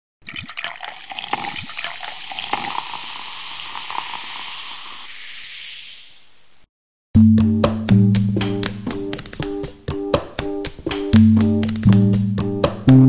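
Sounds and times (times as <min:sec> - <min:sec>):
carbonated drink pouring and fizzing: 0:00.2 - 0:06.5.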